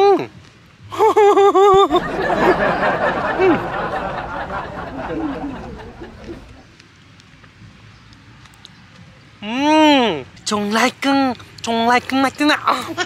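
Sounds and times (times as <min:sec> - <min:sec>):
man laughing: 0:00.9 - 0:06.6.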